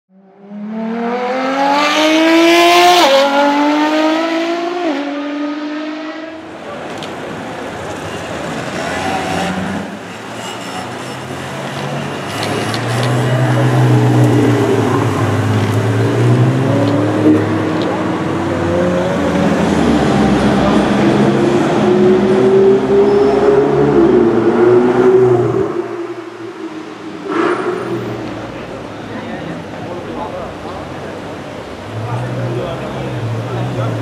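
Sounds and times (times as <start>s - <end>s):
street traffic noise: 0.1s - 34.0s
high-revving car engine accelerating: 0.2s - 6.4s.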